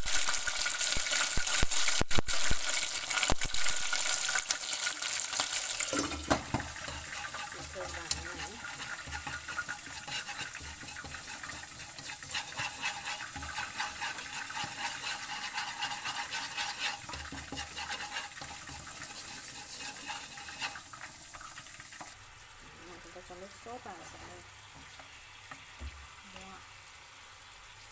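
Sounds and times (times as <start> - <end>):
chopsticks stirring in a wok: 0.0 - 22.2
aromatics sizzling in hot oil: 0.0 - 27.9.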